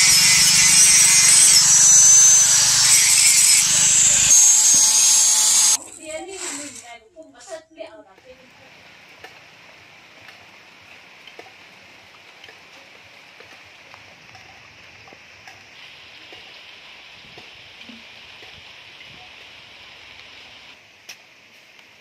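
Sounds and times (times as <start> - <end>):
light rain falling: 8.0 - 22.0.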